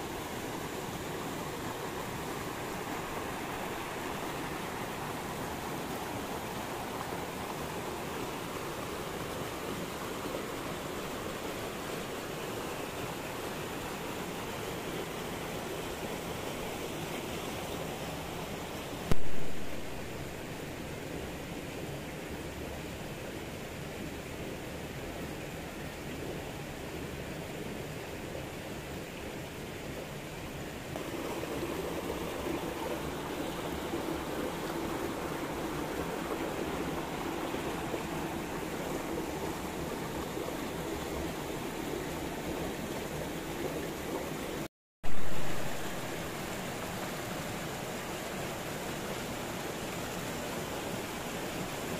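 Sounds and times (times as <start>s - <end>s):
rushing stream water: 0.0s - 51.9s
sharp loud click: 19.1s - 19.7s.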